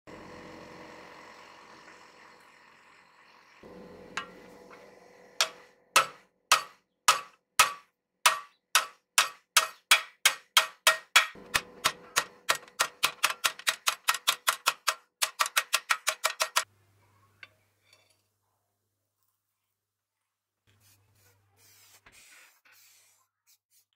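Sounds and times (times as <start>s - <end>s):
hammer striking steel on anvil: 3.7s - 16.6s.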